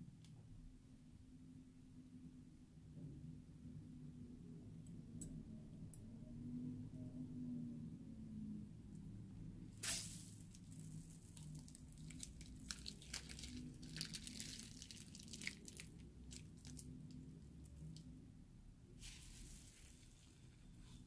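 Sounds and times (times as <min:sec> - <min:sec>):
faint crackling and squishing: 0:09.7 - 0:21.0.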